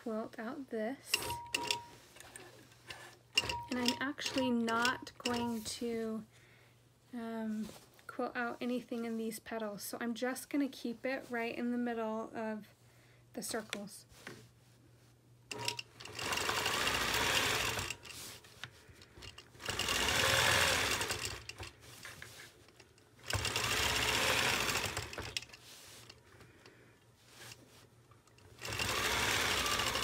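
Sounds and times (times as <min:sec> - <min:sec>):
quilting machine stitching: 0:01.2 - 0:05.6, 0:15.5 - 0:18.4, 0:19.2 - 0:22.4, 0:23.1 - 0:26.2, 0:28.3 - 0:30.0.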